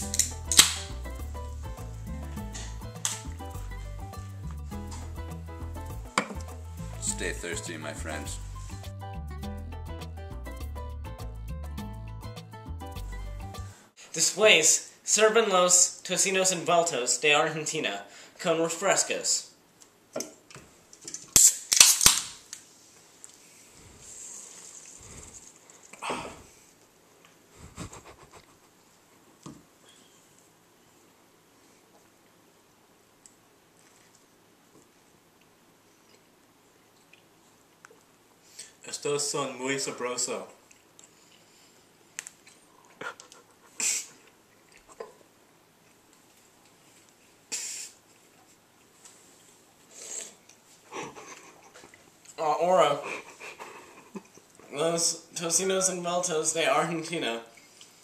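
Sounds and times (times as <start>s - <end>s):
soda can tab pops: 0.1s - 0.9s, 21.3s - 22.4s
person snorting stifled laughter: 27.5s - 28.8s, 43.0s - 44.2s, 50.9s - 51.8s
fizz of escaping gas: 47.5s - 48.0s.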